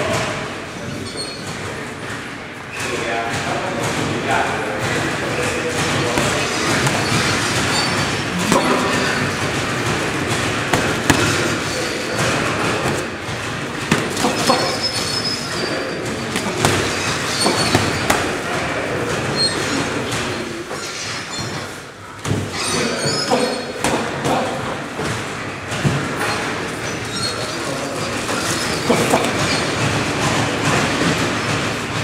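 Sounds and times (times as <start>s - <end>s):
boxing gloves punching: 5.7s - 19.3s.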